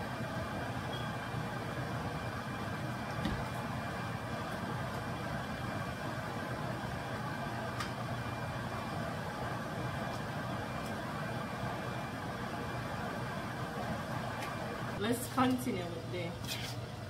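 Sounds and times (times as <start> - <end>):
vent fan whirring: 0.0 - 17.0.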